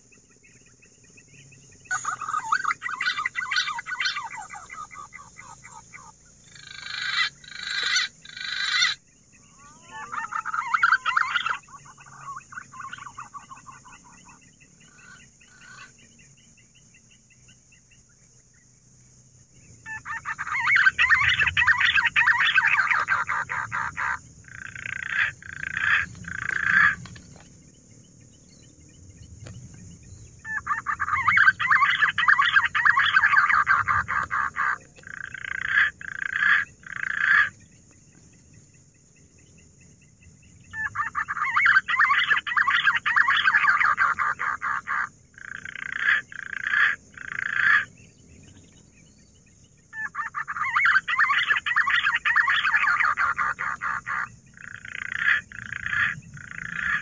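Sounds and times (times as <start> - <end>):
pigeons calling in rapid notes: 1.9 - 9.0, 19.9 - 27.6, 30.5 - 37.6, 40.8 - 47.9, 50.1 - 57.0.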